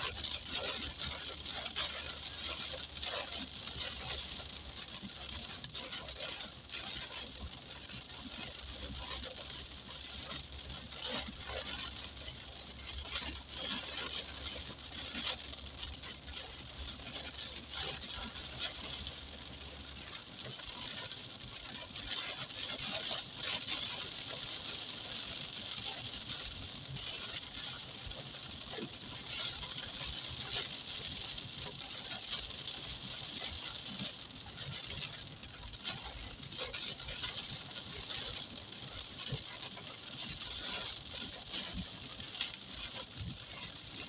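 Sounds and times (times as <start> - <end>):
heavy rain on car roof: 0.0 - 44.0.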